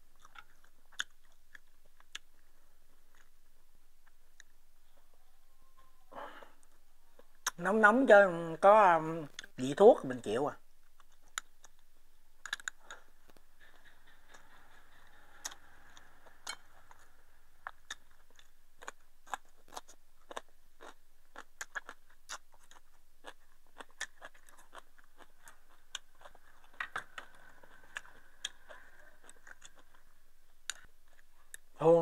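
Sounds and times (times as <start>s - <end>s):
person chewing: 0.0s - 5.1s, 10.8s - 31.8s.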